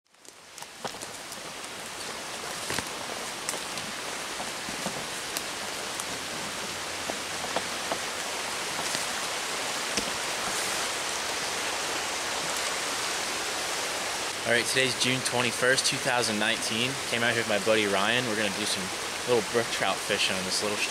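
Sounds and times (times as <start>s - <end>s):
brook running over rocks: 0.1s - 20.9s
twigs snapping underfoot: 2.4s - 6.3s.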